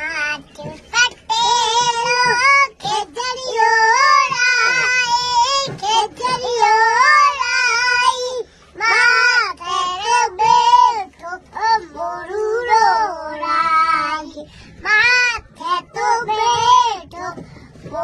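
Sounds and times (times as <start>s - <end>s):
boy singing: 0.0s - 18.0s.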